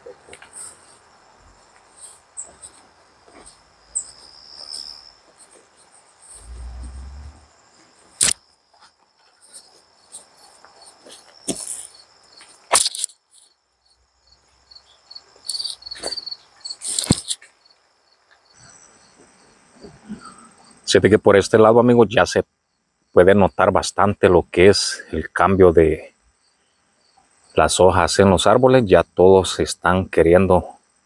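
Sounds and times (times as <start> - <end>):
crickets trilling: 0.0 - 31.0
brief low rumble: 6.4 - 7.5.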